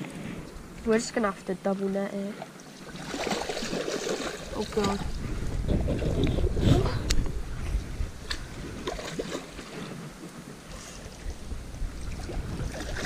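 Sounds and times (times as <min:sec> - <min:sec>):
faint water noise: 0:00.0 - 0:13.0
wind rumbling on microphone: 0:02.9 - 0:13.0.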